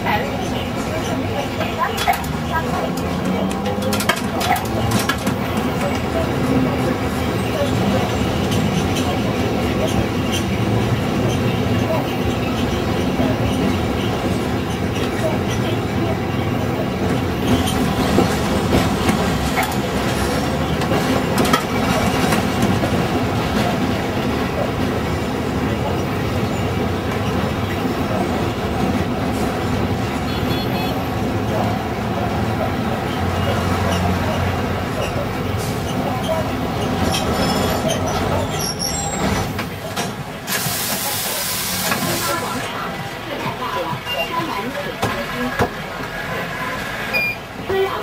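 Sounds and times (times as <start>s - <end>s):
tram rumbling along track: 0.0s - 48.0s
loud hiss: 40.5s - 42.6s.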